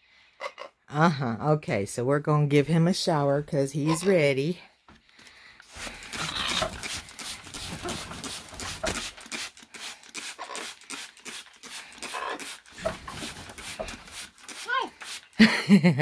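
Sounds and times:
spray bottle hissing sprays: 0:05.7 - 0:15.4
bird flapping wings: 0:06.0 - 0:14.6.

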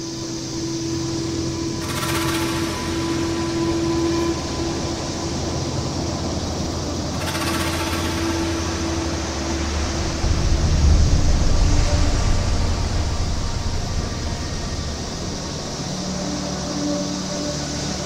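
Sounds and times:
faint steady hum: 0:00.0 - 0:18.0
deep low rumble: 0:10.2 - 0:16.2.

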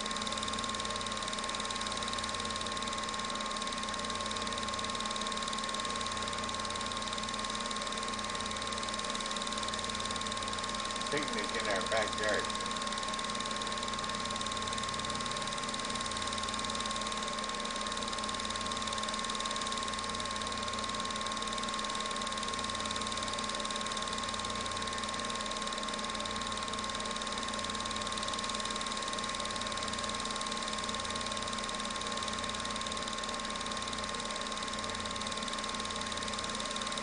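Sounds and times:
film projector whirring: 0:00.0 - 0:37.0.

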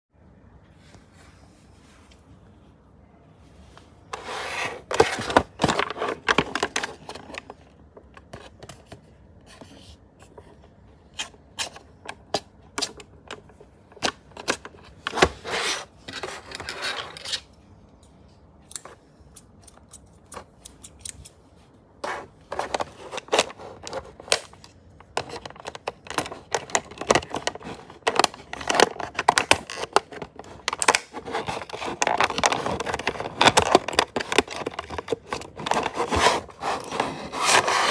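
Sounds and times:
plastic packaging crinkling: 0:25.2 - 0:37.9.

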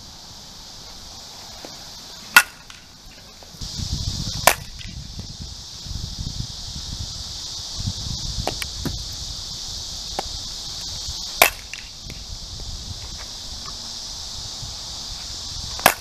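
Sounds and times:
steady high hiss: 0:00.0 - 0:16.0
bat hitting softball: 0:01.6 - 0:02.9, 0:04.4 - 0:05.0, 0:11.4 - 0:12.2, 0:15.8 - 0:16.0
wind rumble on microphone: 0:03.5 - 0:16.0.

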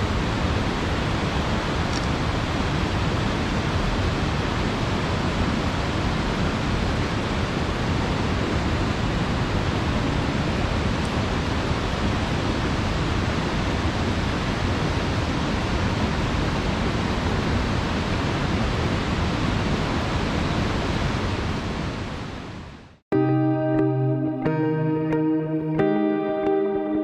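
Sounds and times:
plucked guitar music: 0:23.1 - 0:27.0.

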